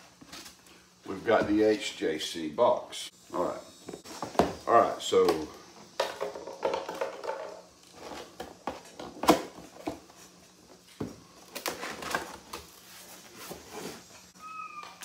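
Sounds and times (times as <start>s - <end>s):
cardboard rustling and scraping: 7.9s - 14.3s.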